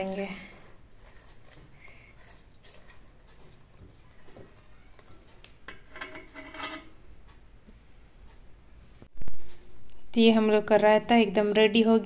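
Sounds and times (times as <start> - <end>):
metal spoon stirring in metal bowl: 0.0 - 7.0.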